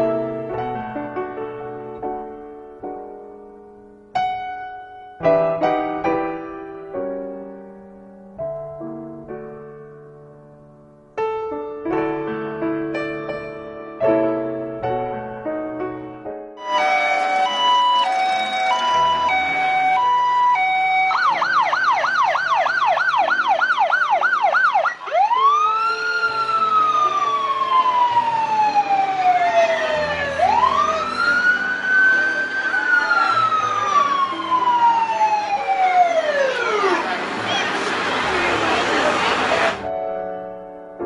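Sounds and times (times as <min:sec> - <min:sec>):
fire engine siren: 0:16.6 - 0:39.9.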